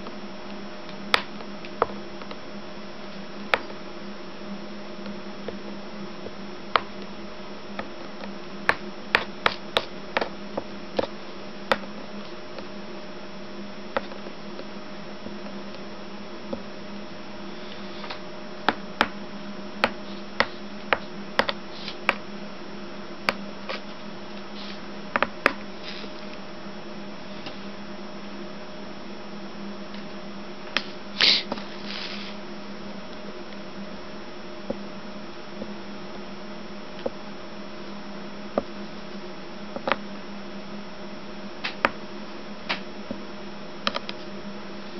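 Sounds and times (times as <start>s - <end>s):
soldering hissing sizzle: 0.0s - 28.0s, 30.8s - 32.5s.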